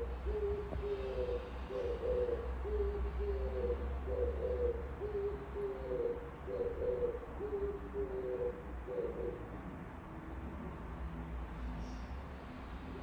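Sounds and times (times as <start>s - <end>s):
dove cooing: 0.0s - 9.5s.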